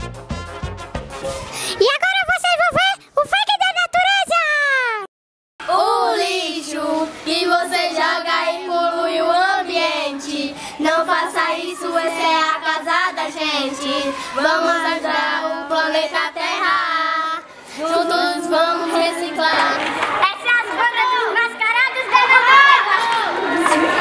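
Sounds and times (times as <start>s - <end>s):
children singing: 5.6s - 20.2s.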